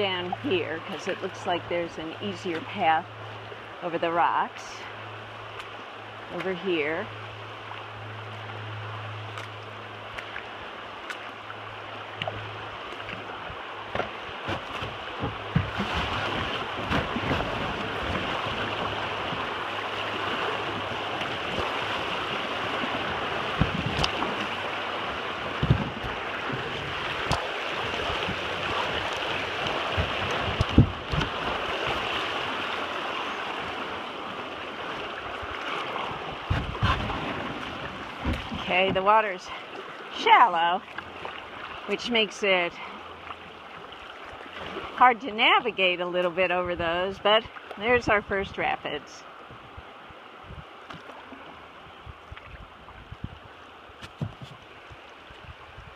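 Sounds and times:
paddle splashes and knocks: 9.2 - 42.0, 50.4 - 55.9.

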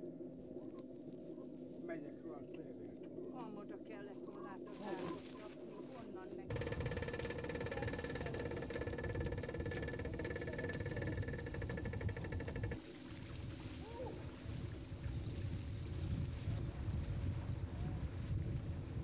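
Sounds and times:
low rough rumble: 6.4 - 12.8
engine running with fast pulse: 6.5 - 12.8.

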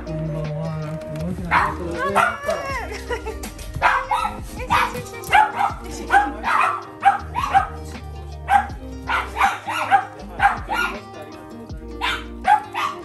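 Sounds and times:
background music: 0.0 - 13.0
dog barking: 1.5 - 2.6, 3.8 - 7.9, 8.5 - 11.0, 12.0 - 13.0.

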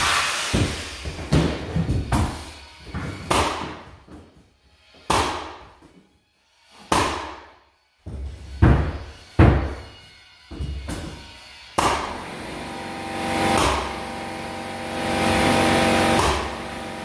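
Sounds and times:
pneumatic nailer firing: 11.7 - 14.2, 15.0 - 17.0.

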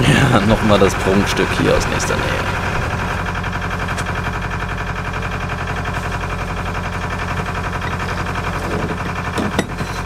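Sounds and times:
boat engine chugging: 0.0 - 10.0.

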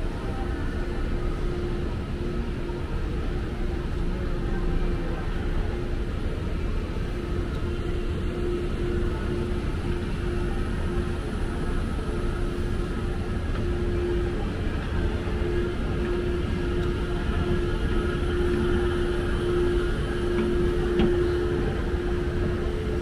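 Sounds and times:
escalator hum: 0.0 - 23.0.

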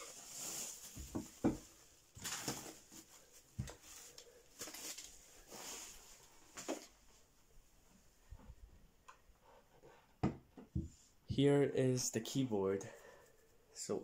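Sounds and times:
bubble wrap rustling: 0.0 - 7.0
dull knocks on wooden desk: 10.2 - 10.9.

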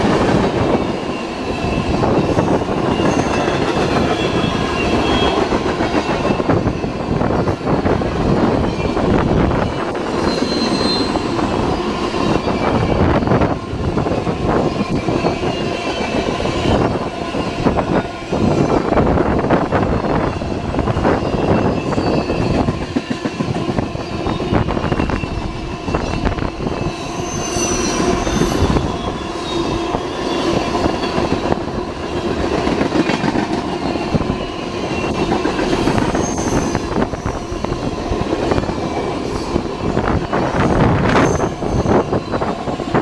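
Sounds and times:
freight train wheels rumbling: 0.0 - 43.0
high wheel squeal: 1.1 - 5.5, 9.7 - 13.4, 21.1 - 22.7, 23.9 - 31.5, 33.8 - 37.8, 39.3 - 42.5.

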